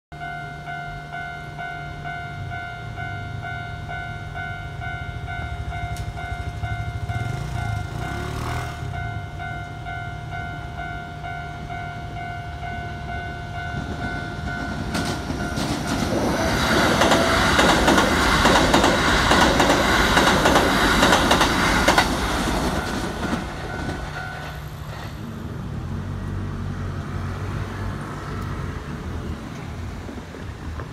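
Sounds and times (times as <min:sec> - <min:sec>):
electric train passing: 0:00.2 - 0:30.9
wheels clacking over rail joints: 0:13.5 - 0:25.4.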